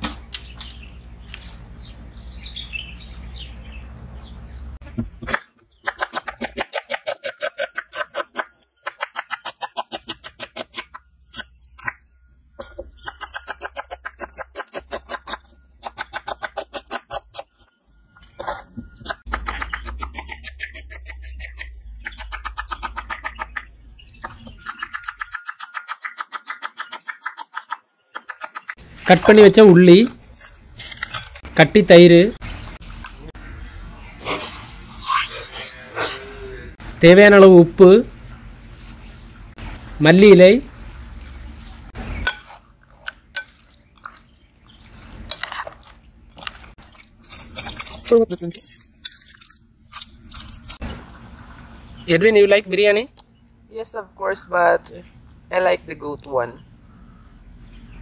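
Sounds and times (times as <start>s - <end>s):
food rustling and squelching: 28.8s - 31.6s, 32.4s - 33.4s, 38.1s - 52.1s.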